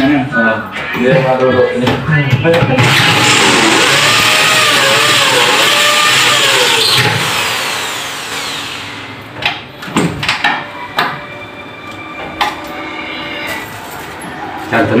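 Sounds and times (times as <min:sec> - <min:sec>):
power drill winding down: 0:02.8 - 0:09.0.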